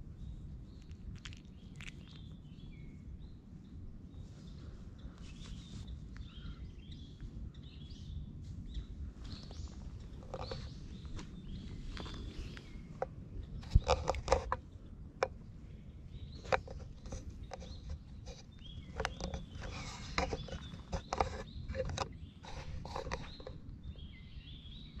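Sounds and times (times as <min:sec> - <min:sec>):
small birds chirping: 0:00.0 - 0:25.0
rustling and sharp clicks: 0:09.5 - 0:14.6.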